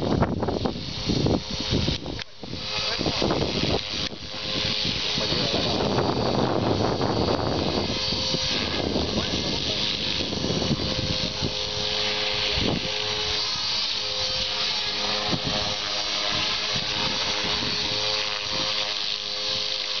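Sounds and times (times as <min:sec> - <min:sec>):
rc helicopter motor whine: 0:00.0 - 0:20.0.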